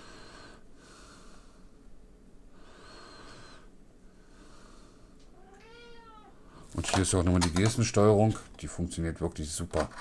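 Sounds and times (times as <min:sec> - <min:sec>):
faint whistling breathing: 0:02.6 - 0:05.0.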